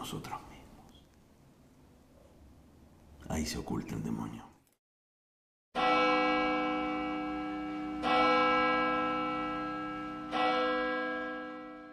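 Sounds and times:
church bell tolling: 0:05.8 - 0:11.9.

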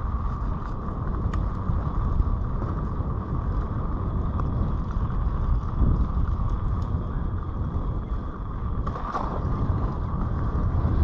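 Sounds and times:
tyres rumbling on gravel: 0:00.0 - 0:11.0
wind buffeting microphone: 0:00.0 - 0:11.0.

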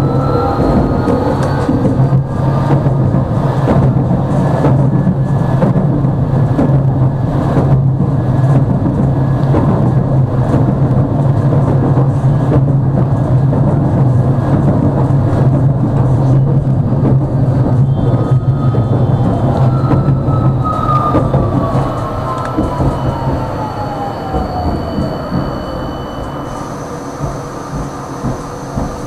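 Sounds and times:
tram interior hum: 0:00.0 - 0:29.0
wheels on rails: 0:00.0 - 0:29.0.

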